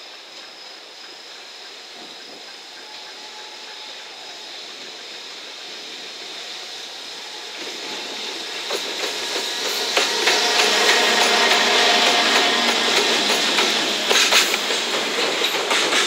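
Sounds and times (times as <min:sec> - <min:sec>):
freight train running noise: 0:00.0 - 0:16.0
wheels clattering over rails: 0:08.4 - 0:16.0.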